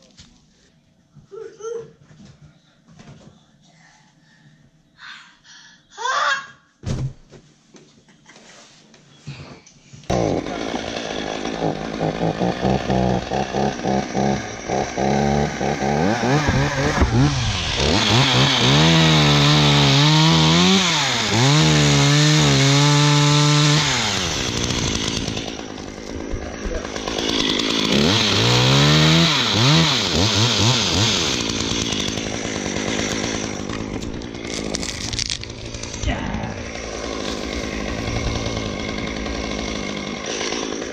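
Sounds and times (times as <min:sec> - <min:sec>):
chainsaw cutting through wood: 0:10.1 - 0:40.9
chainsaw revving: 0:10.1 - 0:40.9.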